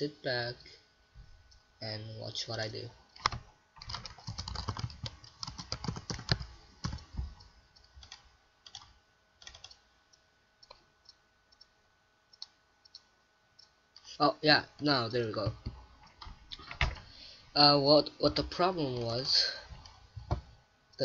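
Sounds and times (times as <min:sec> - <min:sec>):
keyboard typing: 0:03.2 - 0:09.8.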